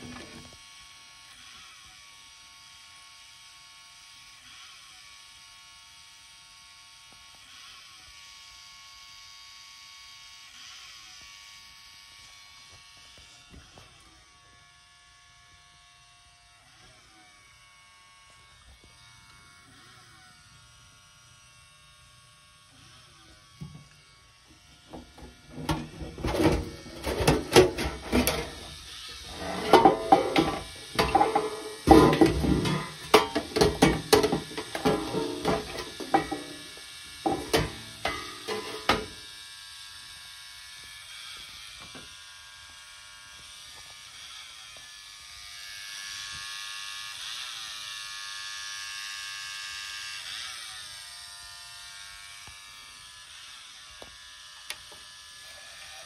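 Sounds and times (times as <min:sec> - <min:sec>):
metal casing knocks and clatter: 0:25.6 - 0:28.7, 0:29.3 - 0:36.6, 0:37.2 - 0:39.1.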